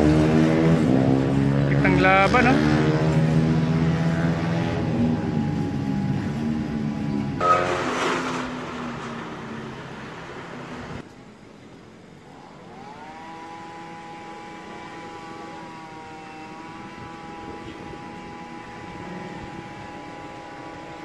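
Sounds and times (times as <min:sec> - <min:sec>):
distant racing engines whining: 0:00.0 - 0:11.0, 0:12.0 - 0:21.0
loud rushing noise: 0:00.0 - 0:11.0.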